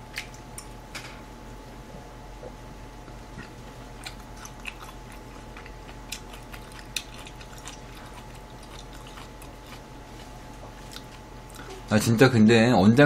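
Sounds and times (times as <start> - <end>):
person chewing with wet mouth clicks: 3.4 - 11.7.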